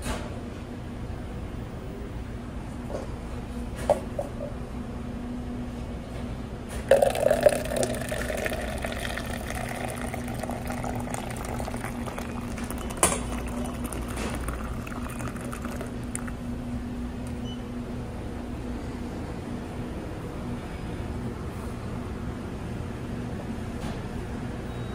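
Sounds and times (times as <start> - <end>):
coffee pouring into paper cup: 6.9 - 16.4.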